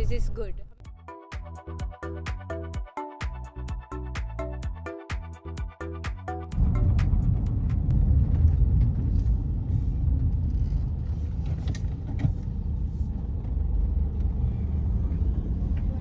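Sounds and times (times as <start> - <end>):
car engine and road noise: 5.4 - 16.0.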